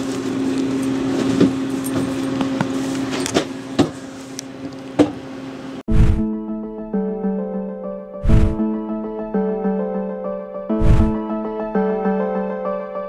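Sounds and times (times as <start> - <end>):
whoosh: 5.9 - 6.3, 8.2 - 8.6, 10.8 - 11.2
low hum: 8.2 - 8.6, 10.7 - 11.2.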